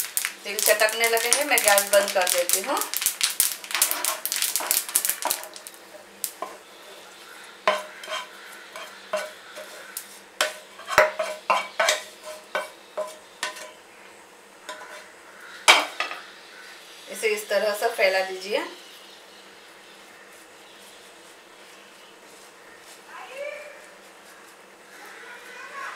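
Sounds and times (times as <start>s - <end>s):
wooden spatula scraping pan: 6.4s - 13.8s, 14.7s - 15.1s.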